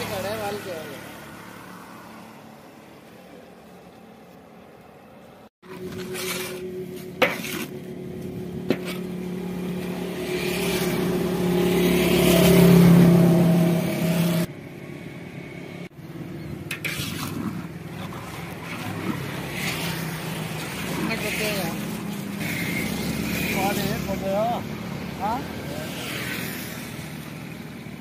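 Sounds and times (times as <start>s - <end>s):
syrup bubbling: 16.7s - 22.9s.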